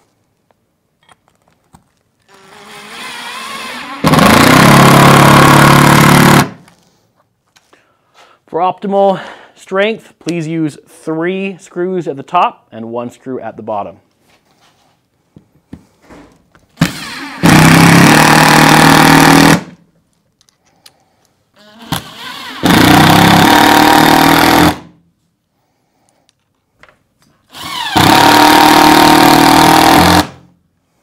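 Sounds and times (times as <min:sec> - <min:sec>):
power drill driving screws: 0:02.3 - 0:06.6, 0:16.8 - 0:19.7, 0:21.6 - 0:24.8, 0:27.5 - 0:30.4.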